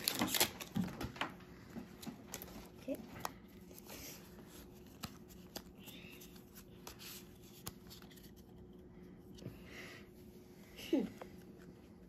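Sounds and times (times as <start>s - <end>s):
card pack rustling: 0.0s - 1.1s.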